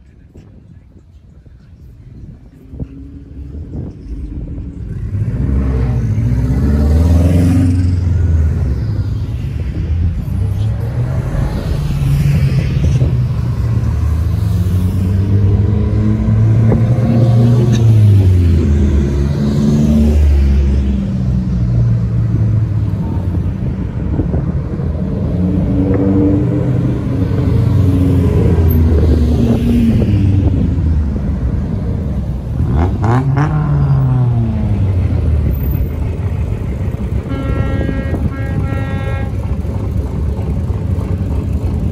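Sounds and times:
vehicles driving past: 0:00.0 - 0:41.9
car horn: 0:37.1 - 0:39.8.

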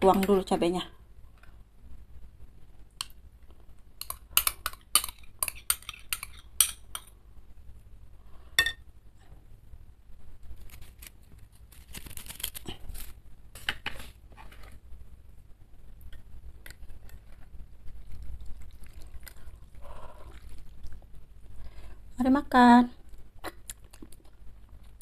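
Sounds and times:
crackers scraping and rustling: 0:10.4 - 0:14.9.

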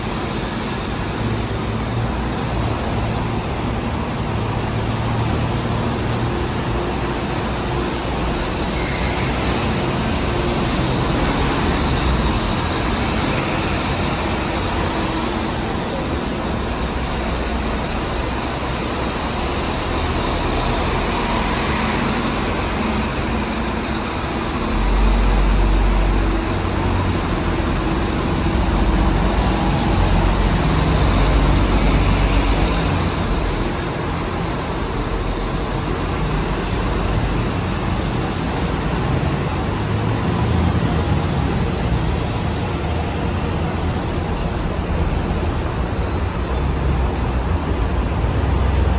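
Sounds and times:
bus engines running: 0:00.0 - 0:48.9
traffic noise: 0:00.0 - 0:48.9
air brake hiss: 0:29.2 - 0:31.0.

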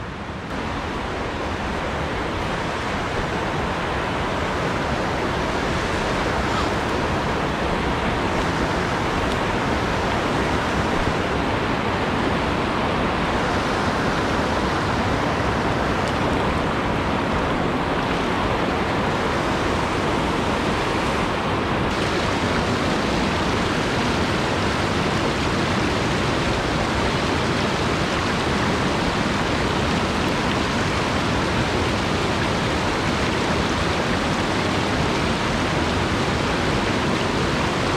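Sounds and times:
mountain stream rushing over rocks: 0:00.0 - 0:37.9.

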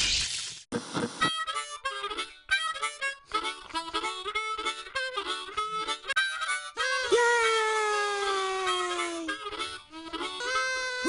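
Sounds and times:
lively tune on reedy instrument: 0:01.3 - 0:07.2, 0:08.7 - 0:11.0.

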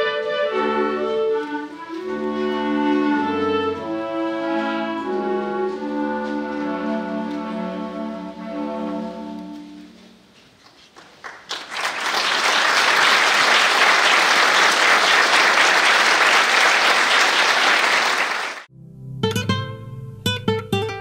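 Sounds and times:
clarinet choir chord: 0:00.0 - 0:10.1
audience applause: 0:10.6 - 0:18.7.

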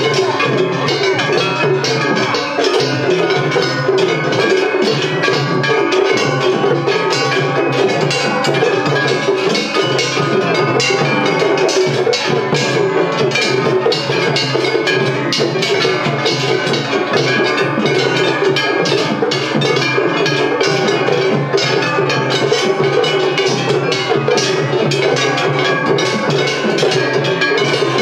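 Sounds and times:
metal gongs clanging: 0:00.0 - 0:28.0
taiko drums: 0:00.0 - 0:28.0.

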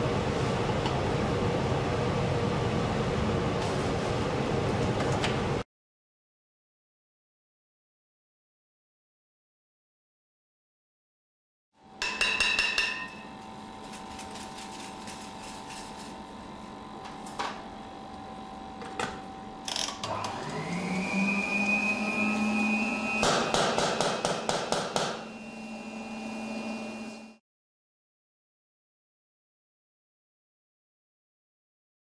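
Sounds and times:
steady machine hum: 0:11.8 - 0:27.4
tool knocking on metal container: 0:12.0 - 0:13.2, 0:23.2 - 0:25.2
motor spinning up: 0:19.6 - 0:23.2.

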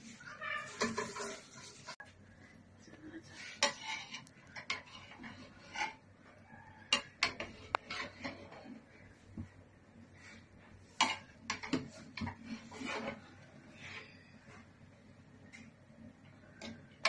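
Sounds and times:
rice rustling: 0:00.0 - 0:02.2
spatula clacking against pot: 0:06.9 - 0:08.6.

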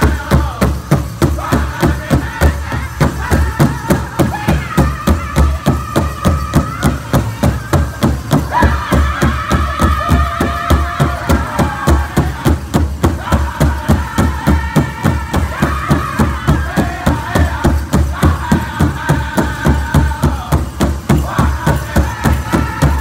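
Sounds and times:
big drum fast beat: 0:00.0 - 0:23.0
men singing high-pitched: 0:00.0 - 0:23.0.

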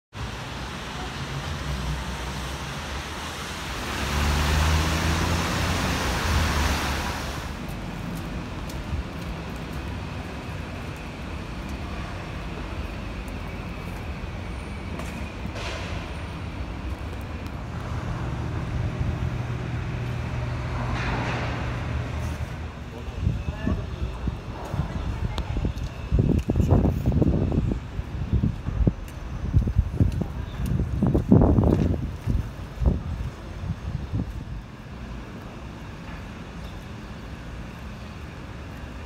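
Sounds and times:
traffic on wet streets: 0:00.1 - 0:39.0
vehicle passing with tyre hiss: 0:00.2 - 0:07.7, 0:17.6 - 0:22.8
vehicle engine humming: 0:00.2 - 0:24.6.

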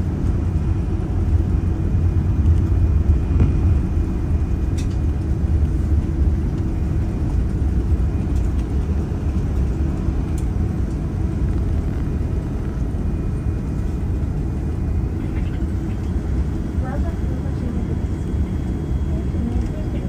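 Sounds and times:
airplane cabin rumble while taxiing: 0:00.0 - 0:20.0.

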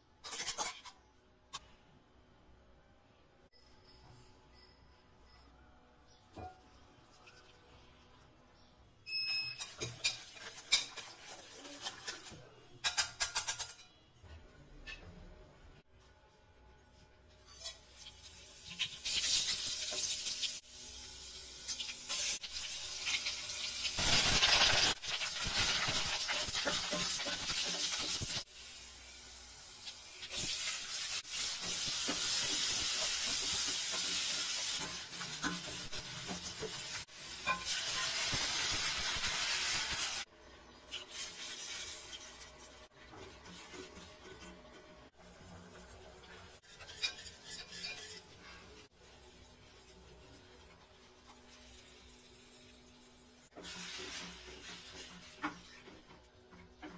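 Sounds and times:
hot oil sizzling: 0:17.4 - 0:44.2, 0:45.1 - 0:56.9
ladle stirring: 0:42.1 - 0:48.9.

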